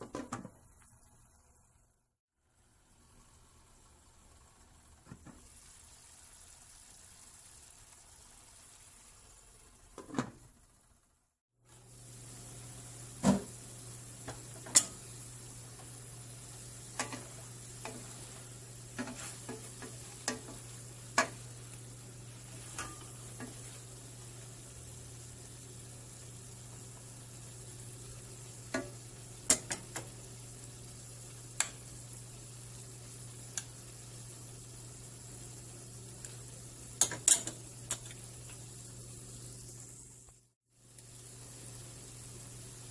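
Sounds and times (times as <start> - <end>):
low steady sizzle: 0.0 - 42.9
wooden spoon knocking on pan: 19.0 - 21.4.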